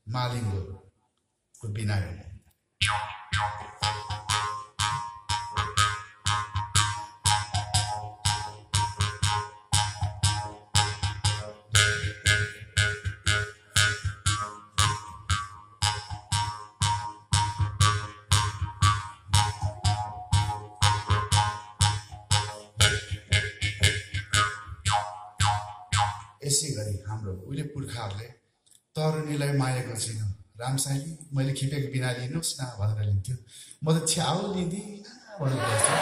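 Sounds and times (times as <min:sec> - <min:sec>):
jaw harp plucking over drone: 0:02.8 - 0:27.1.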